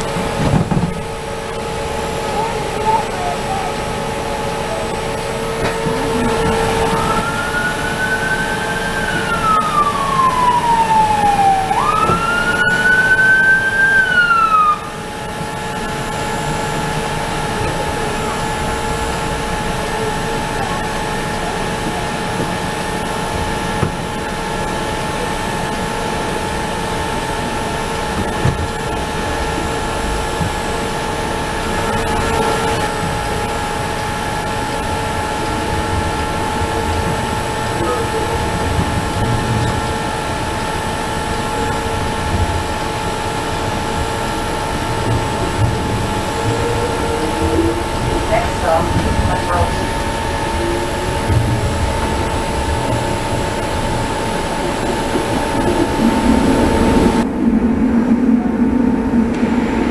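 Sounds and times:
streetcar hum: 0.0 - 59.9
siren wailing: 5.7 - 15.3, 44.0 - 53.0.

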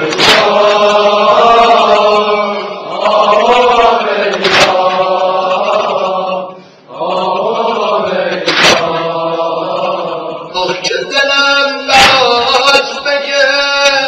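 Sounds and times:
sharp percussive hit: 0.1 - 0.8, 4.4 - 5.1, 8.4 - 9.2, 12.0 - 12.6
man singing lament: 8.9 - 14.0.

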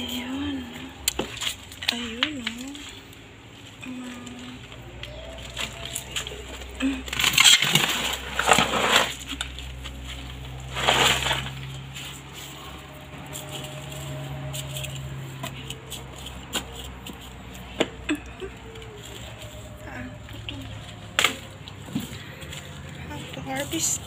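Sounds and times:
hands scraping through gritty soil: 4.9 - 18.0.

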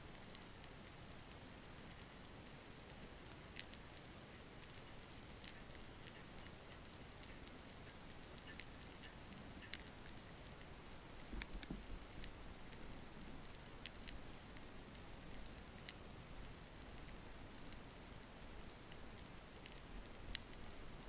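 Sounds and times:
sharp clicks and crackles: 0.0 - 21.0.

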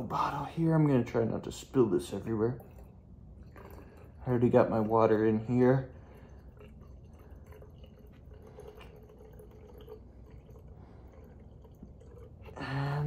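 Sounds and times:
liquid trickling and splashing: 1.5 - 13.0.

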